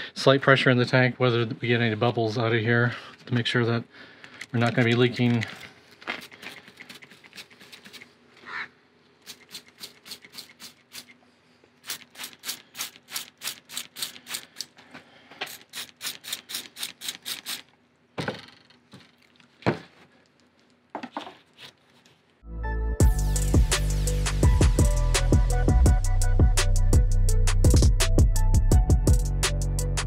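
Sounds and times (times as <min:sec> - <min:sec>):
spray bottle squirting: 0:06.1 - 0:08.1, 0:09.2 - 0:11.2, 0:11.8 - 0:14.8, 0:15.4 - 0:17.7.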